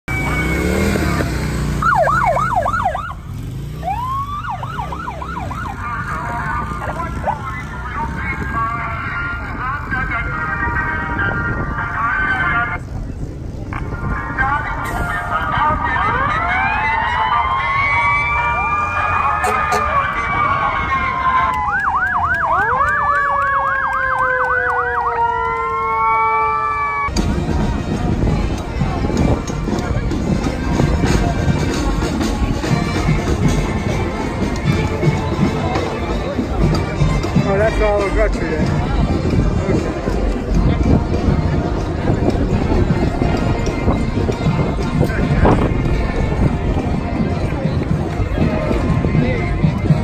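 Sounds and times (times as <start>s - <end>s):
motorcycle engine rumble: 0.0s - 50.0s
siren yelping and wailing: 0.1s - 12.8s, 14.8s - 27.1s.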